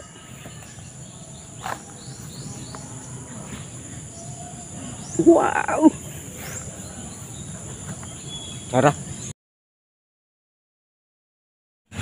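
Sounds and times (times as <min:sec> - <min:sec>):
insects trilling: 0:00.0 - 0:09.3.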